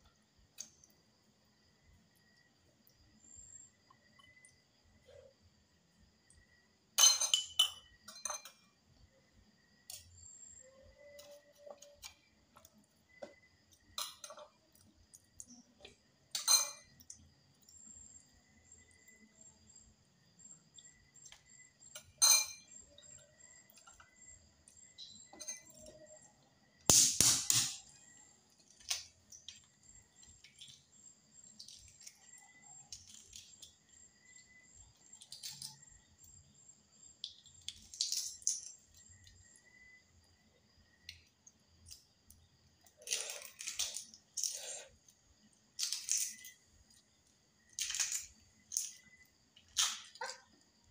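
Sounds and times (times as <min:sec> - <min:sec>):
spoon clinking against glass bowl: 0:07.0 - 0:08.7, 0:16.3 - 0:17.1, 0:22.0 - 0:22.7
egg shell tapped and peeled: 0:26.9 - 0:27.8.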